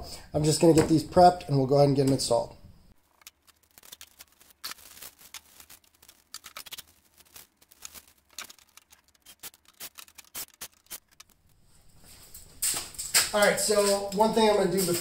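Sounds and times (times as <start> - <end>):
plastic wrapping crinkling: 3.0 - 15.0.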